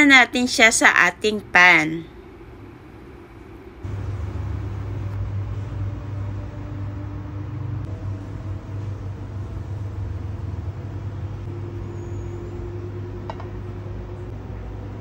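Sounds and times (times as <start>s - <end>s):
steady low hum: 0.0s - 15.0s
faint held tone: 11.5s - 14.3s.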